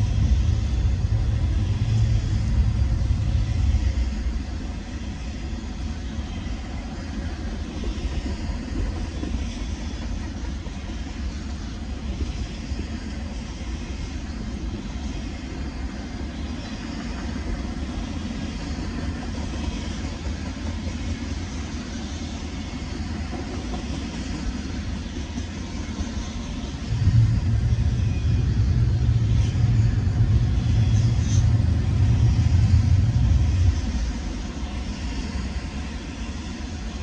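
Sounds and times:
freight train rolling past: 0.0s - 37.0s
loud low rumble: 26.9s - 33.8s.

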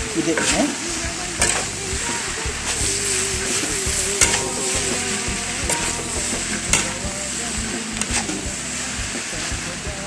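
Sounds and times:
noodles sizzling in a wok: 0.0s - 10.0s
utensil knocking against wok: 1.4s - 2.6s, 3.6s - 7.2s.

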